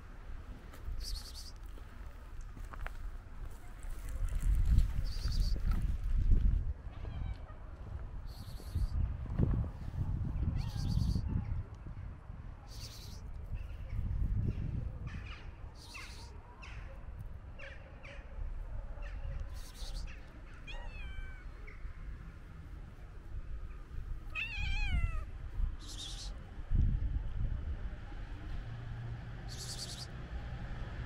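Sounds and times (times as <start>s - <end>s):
cat meowing: 20.6s - 21.6s, 24.3s - 25.3s.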